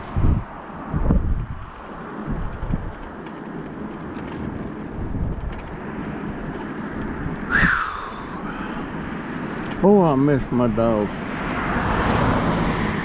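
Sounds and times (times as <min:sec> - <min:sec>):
wind on microphone: 0:00.0 - 0:09.8
mobility scooter rumbling on asphalt: 0:00.0 - 0:13.0.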